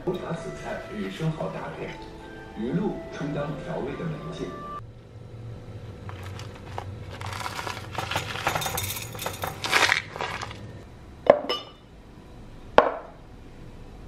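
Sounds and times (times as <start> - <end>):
paper pouch crinkling: 6.0 - 10.8
granola rattling into a glass: 6.1 - 10.7
dishes clinking on a table: 8.0 - 9.9, 11.3 - 11.8.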